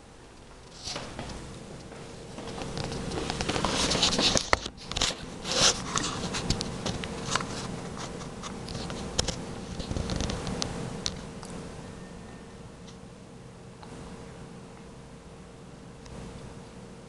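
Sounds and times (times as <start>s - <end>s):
faint hum: 0.0s - 17.0s.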